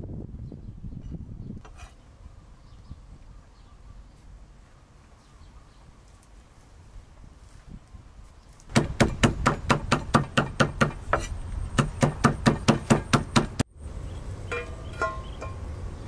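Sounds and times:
cleaver chopping on wooden block: 8.7 - 13.6.

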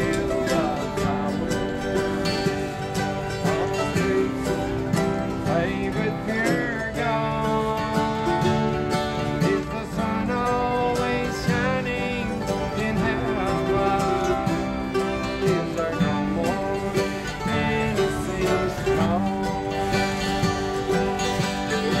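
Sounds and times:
fiddle: 0.0 - 22.0
mandolin: 0.0 - 22.0
strummed acoustic guitar: 0.0 - 22.0.

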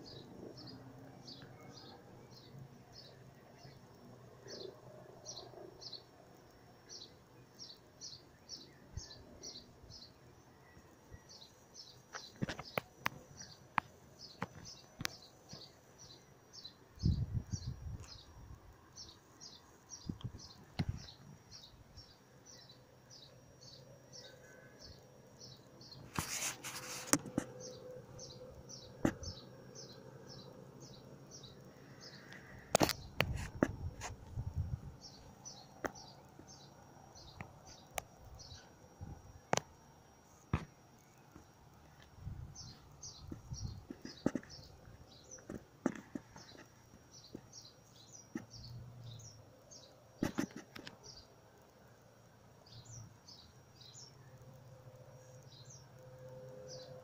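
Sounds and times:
small bird chirping: 0.0 - 6.2, 6.8 - 39.6, 41.1 - 51.6, 52.6 - 54.6
faint low hum: 0.0 - 57.0
sharp clicks: 32.3 - 34.1.

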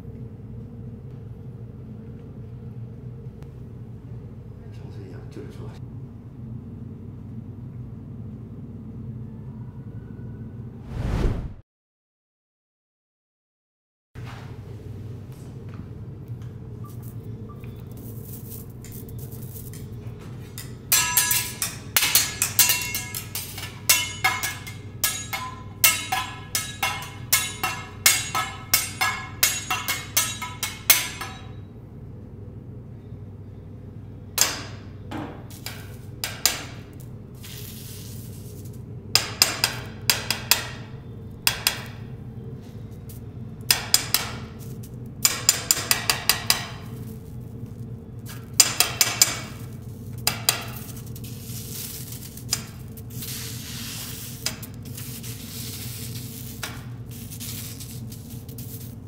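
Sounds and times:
metal spatulas clanking on griddle: 20.6 - 31.6.

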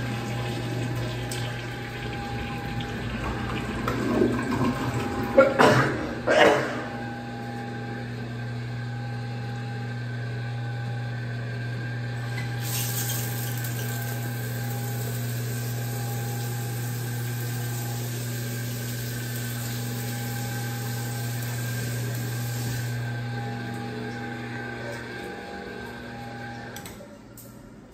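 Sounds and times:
shower water spraying on tile: 12.6 - 22.9.

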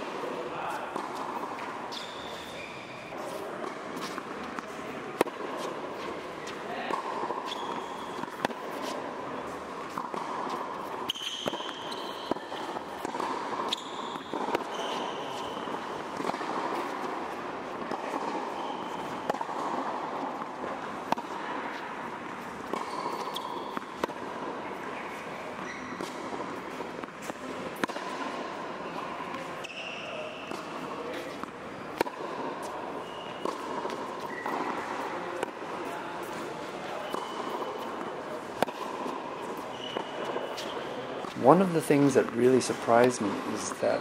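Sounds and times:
racquet hitting tennis ball: 0.0 - 44.0
ball bouncing on hard court: 0.7 - 2.5, 3.6 - 41.4
shoe squeaks on court: 0.7 - 4.2, 5.6 - 9.1, 10.8 - 16.0, 18.0 - 19.3, 22.7 - 24.0, 24.6 - 26.7, 28.8 - 31.4, 32.8 - 36.2, 36.8 - 44.0.

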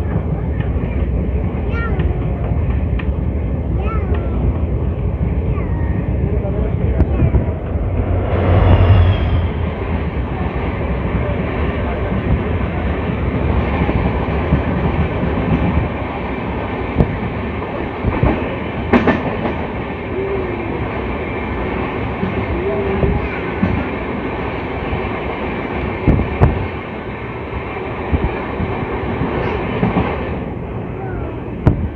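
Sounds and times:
diesel locomotive engine hum: 0.0 - 31.9
sharp bang: 7.2 - 11.0.

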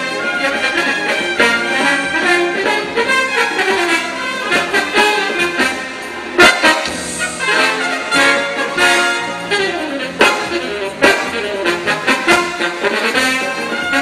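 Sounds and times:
live band playing: 0.0 - 14.0
saxophones and trombone melody: 0.0 - 14.0
loud percussive accents: 4.5 - 12.6.

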